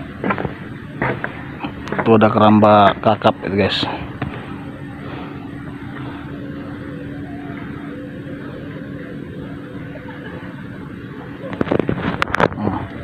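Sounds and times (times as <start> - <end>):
motor droning: 0.0 - 13.0
noisy hiss: 0.0 - 13.0.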